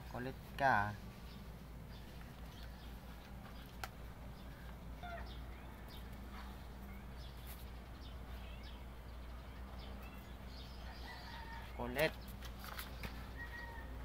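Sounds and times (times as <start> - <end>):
low steady hum: 0.0 - 14.0
high bird chirps: 6.8 - 11.8.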